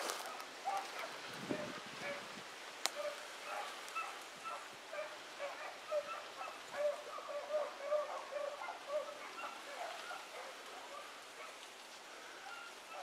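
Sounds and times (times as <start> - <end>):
dogs baying: 3.0 - 11.6.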